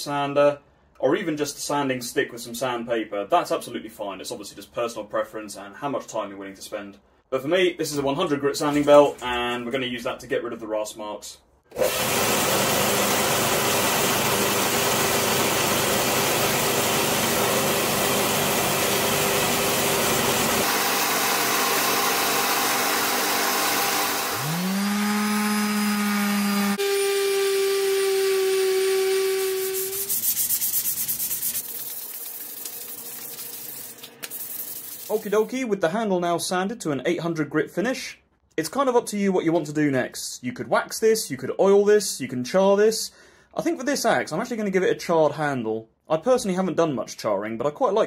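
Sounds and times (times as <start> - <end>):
grinder motor whine: 11.7 - 30.1
belt grinder sanding metal: 20.0 - 35.5
hand rubbing abrasive on wood: 24.4 - 35.5.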